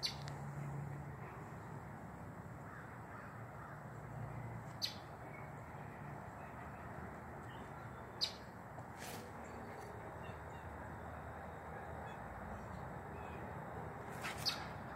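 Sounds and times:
outdoor background noise: 0:00.0 - 0:14.9
brief scuffing: 0:08.8 - 0:09.3, 0:14.1 - 0:14.7.

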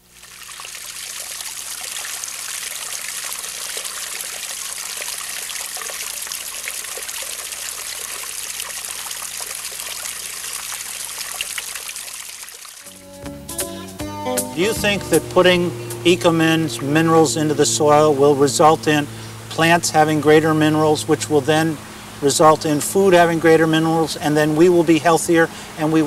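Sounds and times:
water trickling over rocks: 0:00.0 - 0:12.9.

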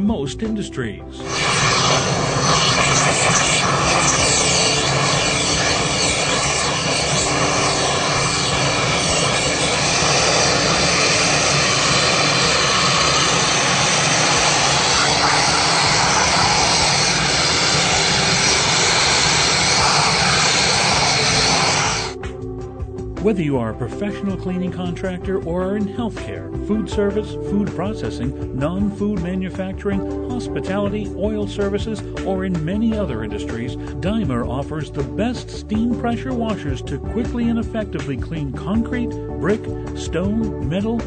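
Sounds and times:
machine hum: 0:01.2 - 0:22.2
pressure washer spraying hiss: 0:01.2 - 0:22.2.

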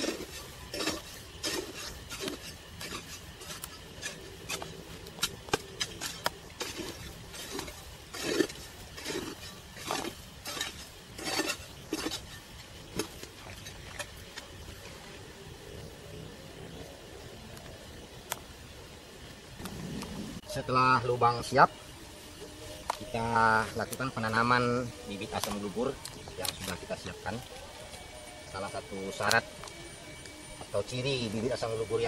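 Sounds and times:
hoe scraping dry soil: 0:00.0 - 0:15.0.

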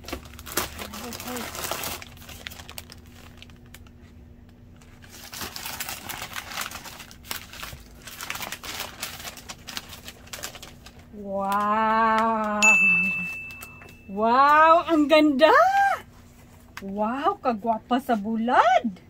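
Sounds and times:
newspaper crumpling: 0:00.0 - 0:04.1, 0:04.8 - 0:11.8.

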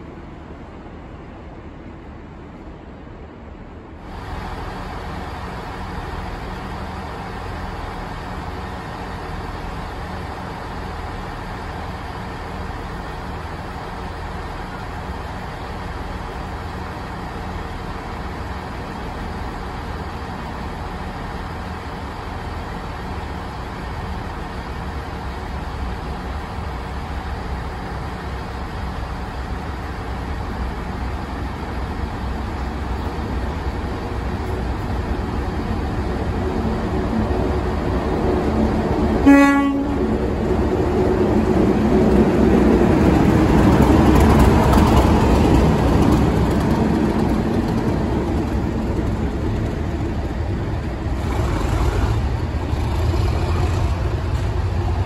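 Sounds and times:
diesel locomotive engines: 0:00.0 - 0:55.0
train horn toot: 0:39.2 - 0:40.1.

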